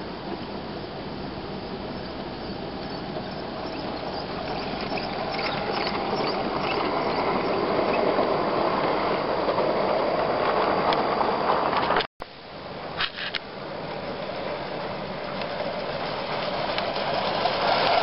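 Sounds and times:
model train rumbling past: 0.0 - 18.0
light clicks over track: 15.2 - 18.0.

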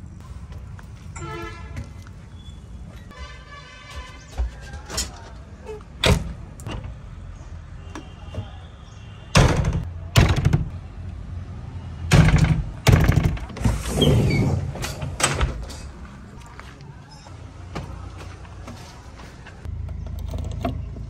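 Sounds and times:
cab door knocking and slamming: 9.3 - 10.7, 12.1 - 13.6.

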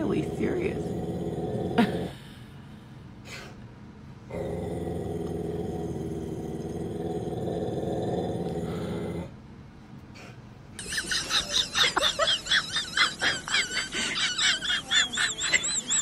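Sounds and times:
dog growling: 0.0 - 2.4, 4.3 - 9.4.

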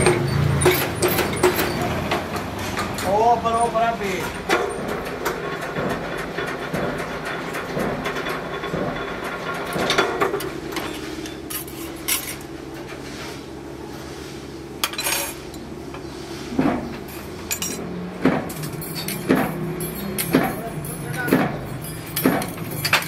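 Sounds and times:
metal rods clinking: 17.5 - 17.9, 18.5 - 23.0.

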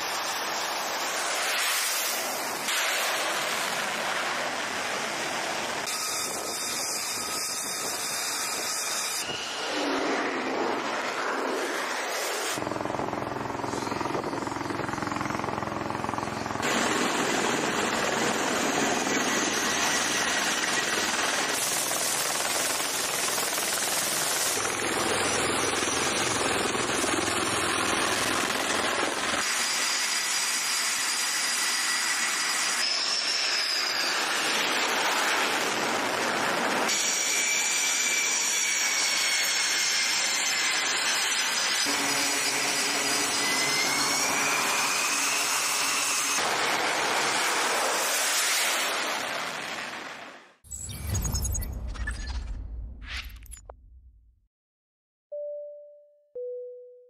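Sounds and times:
jet engine whine rising in pitch: 9.2 - 21.4
jet engines roaring: 9.3 - 15.6.

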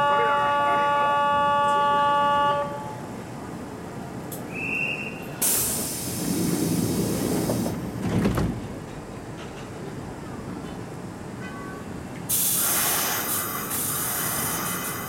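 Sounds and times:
compressed air hiss: 5.4 - 7.8, 12.3 - 15.0
train doors thudding shut: 5.4 - 10.9.

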